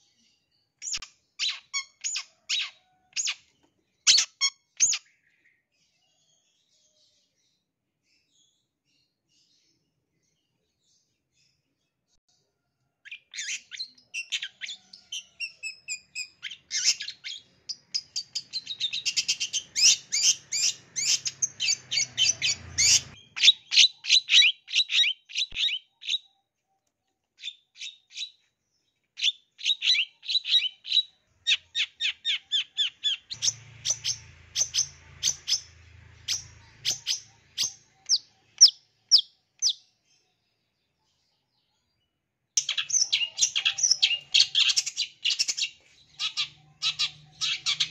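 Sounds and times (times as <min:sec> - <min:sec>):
bird singing sharp high chirps: 0:13.1 - 0:26.4, 0:29.2 - 0:39.8, 0:42.6 - 0:47.9.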